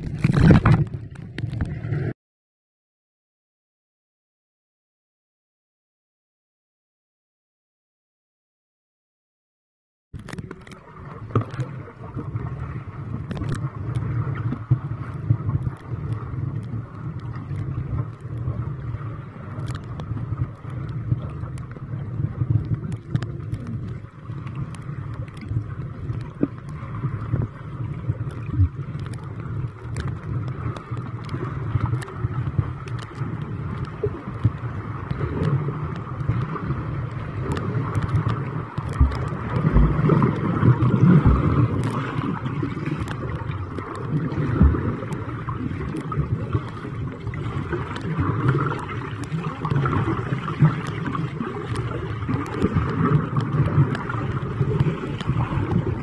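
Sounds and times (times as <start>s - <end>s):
muffled underwater rush: 0.0s - 2.1s, 10.2s - 56.0s
sharp underwater clicks: 0.0s - 2.1s, 10.2s - 11.9s, 13.1s - 56.0s
dull low thumps: 38.9s - 41.7s.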